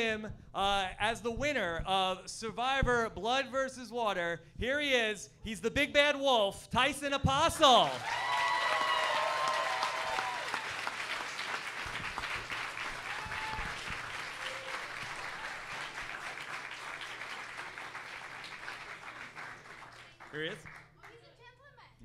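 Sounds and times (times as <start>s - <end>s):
audience applauding: 7.8s - 21.2s.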